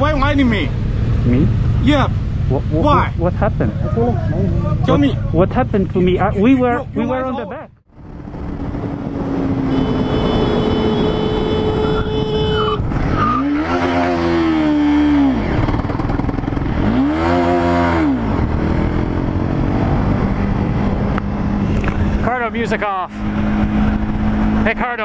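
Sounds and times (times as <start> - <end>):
wind and road noise: 0.0 - 25.0
motorcycle engine revving: 7.9 - 25.0.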